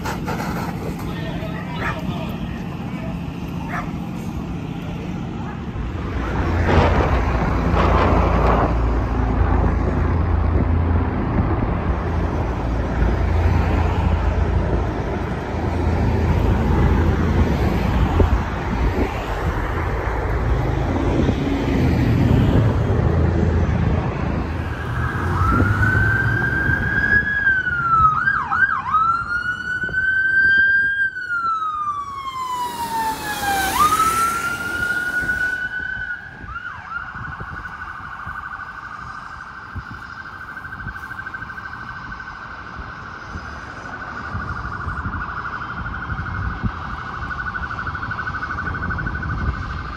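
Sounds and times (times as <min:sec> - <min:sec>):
low rumble of street noise: 0:00.0 - 0:49.9
electronic siren wailing: 0:24.3 - 0:49.9.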